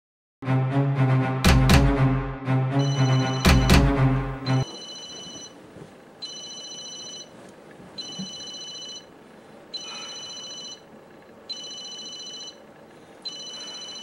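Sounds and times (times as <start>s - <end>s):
phone ringing electronic ringtone: 2.7s - 3.8s, 4.4s - 5.6s, 6.2s - 7.3s, 8.0s - 9.2s, 9.8s - 10.9s, 11.5s - 14.0s.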